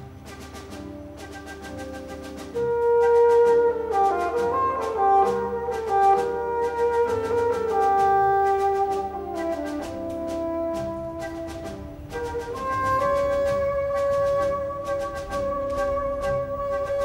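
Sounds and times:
brass music over steady beat: 0:00.0 - 0:17.0.

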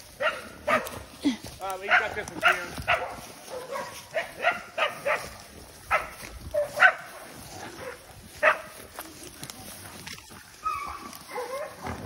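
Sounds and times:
dog barking: 0:00.2 - 0:01.0, 0:01.8 - 0:08.8, 0:10.7 - 0:11.9.

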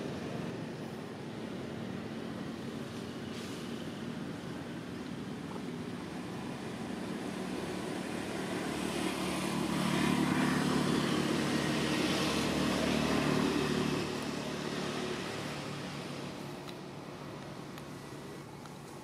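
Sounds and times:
passing engine drone: 0:06.4 - 0:16.5.

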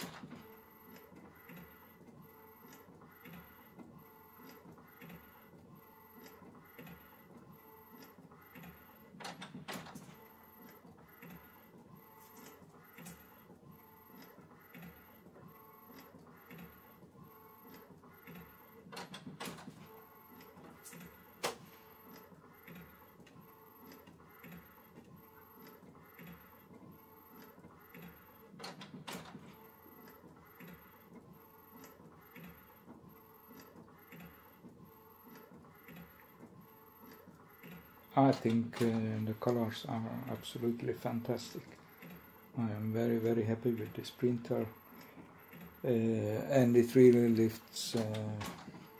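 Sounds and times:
inkjet printer printing: 0:00.0 - 0:48.9
printer click: 0:37.6 - 0:42.2, 0:46.8 - 0:48.9.

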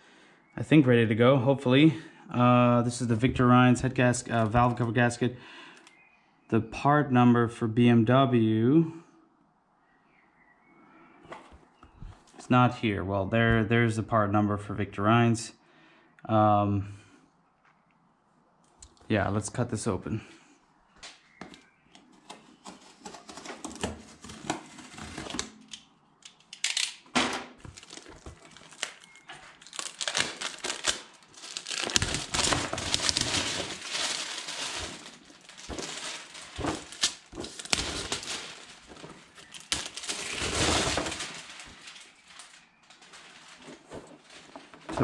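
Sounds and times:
plastic bag crinkling: 0:04.2 - 0:05.0, 0:22.7 - 0:45.0.

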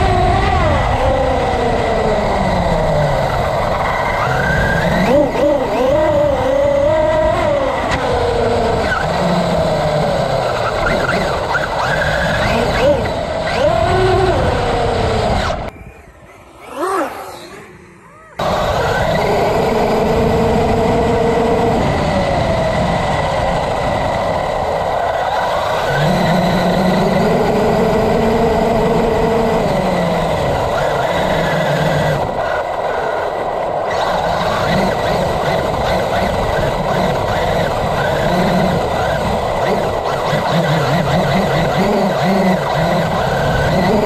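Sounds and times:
electric motor whining: 0:00.0 - 0:44.0.

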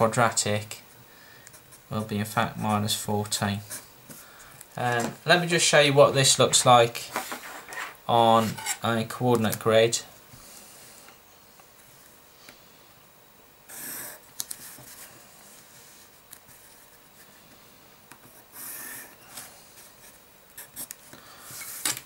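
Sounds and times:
pencil rasping along ruler: 0:13.7 - 0:14.2.

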